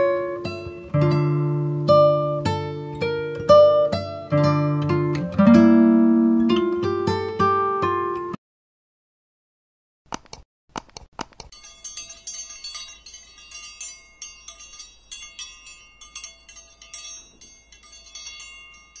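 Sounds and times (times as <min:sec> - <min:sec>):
quick clicks: 0:10.1 - 0:11.6
small bells jingling: 0:11.5 - 0:19.0.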